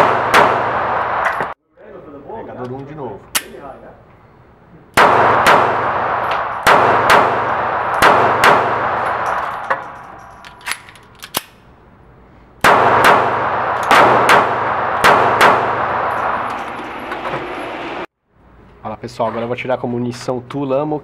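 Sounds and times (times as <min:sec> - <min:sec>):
pistol shots reverberating indoors: 0:00.0 - 0:01.3, 0:05.0 - 0:10.6, 0:12.6 - 0:16.6.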